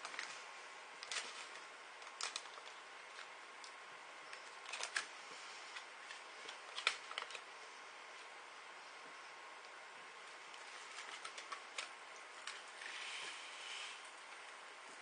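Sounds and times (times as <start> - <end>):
popping candy crackling: 1.0 - 5.1, 5.8 - 7.5.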